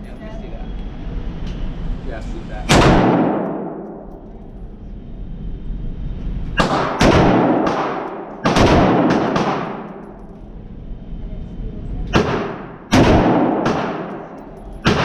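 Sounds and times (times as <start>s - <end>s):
rifle shots echoing indoors: 2.7s - 4.2s, 6.6s - 10.4s, 12.1s - 15.0s.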